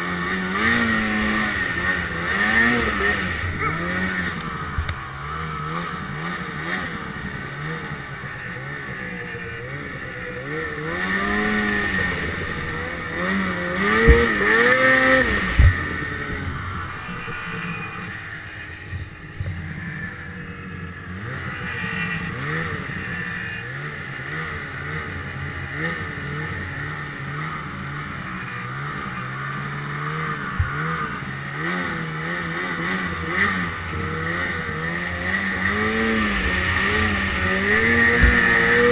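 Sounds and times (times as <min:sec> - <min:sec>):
snowmobile engine revving: 0:00.0 - 0:38.9
sharp thumps: 0:13.8 - 0:14.8, 0:15.4 - 0:16.5.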